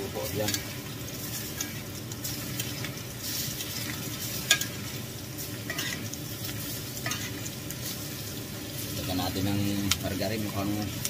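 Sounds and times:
meat sizzling in a skillet: 0.0s - 11.0s
spoon scraping a pan: 0.4s - 8.1s.

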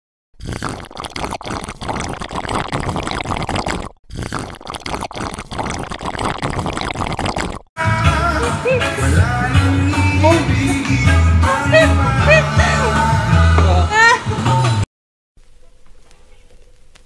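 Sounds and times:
drink slurped through a straw: 0.4s - 7.7s.

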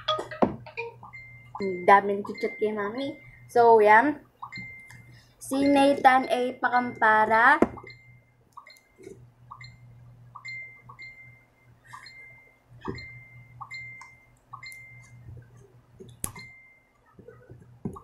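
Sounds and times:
phone notification beeps: 0.0s - 3.4s
steady low hum: 0.0s - 18.0s.

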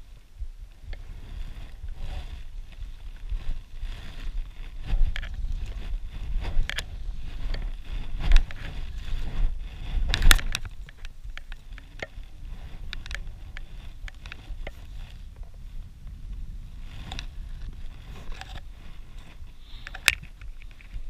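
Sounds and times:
wind rumbling on microphone: 0.0s - 21.0s
clothing and line handling rustle: 1.1s - 15.8s.

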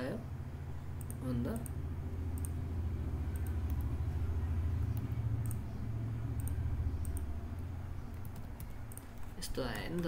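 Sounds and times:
steady low hum: 0.0s - 10.0s
computer mouse clicking: 2.3s - 2.6s, 6.3s - 7.3s, 8.0s - 10.0s.

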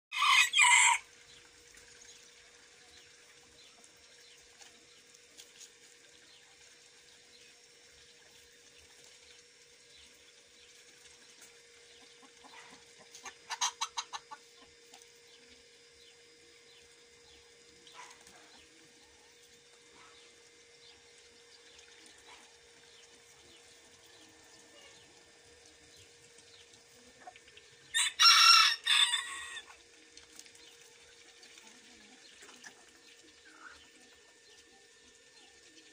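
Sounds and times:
rooster crowing: 0.1s - 1.1s, 27.9s - 29.7s
faint steady hum: 0.2s - 35.9s
chickens clucking loudly: 11.9s - 14.8s.

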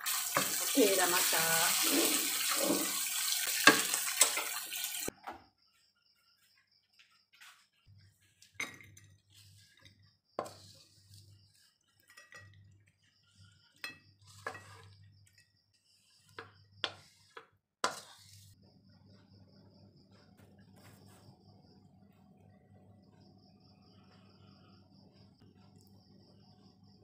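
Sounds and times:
wooden spatula scraping a wok: 0.1s - 4.6s, 7.4s - 8.6s, 9.2s - 18.6s
spatula clinking on ceramic plate: 12.0s - 12.8s.

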